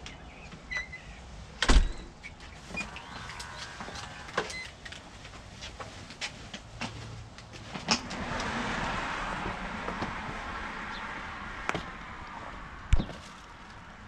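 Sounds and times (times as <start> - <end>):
front door shutting thump: 1.6 - 2.1
wheeled suitcases rolling: 2.6 - 5.5.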